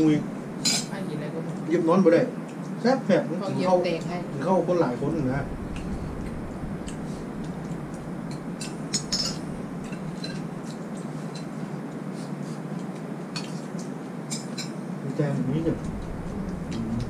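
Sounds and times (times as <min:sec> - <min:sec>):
steady background hum: 0:00.0 - 0:17.0
spoons clinking against bowls: 0:08.6 - 0:11.6, 0:13.3 - 0:14.8.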